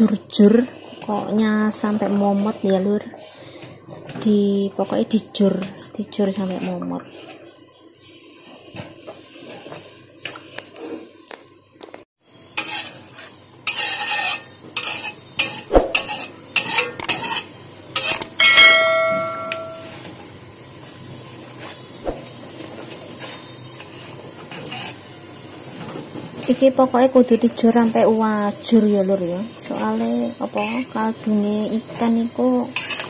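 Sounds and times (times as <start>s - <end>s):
ladle scraping a wok: 12.6s - 19.8s, 23.1s - 25.1s, 32.7s - 33.0s
wok ringing: 18.3s - 20.1s.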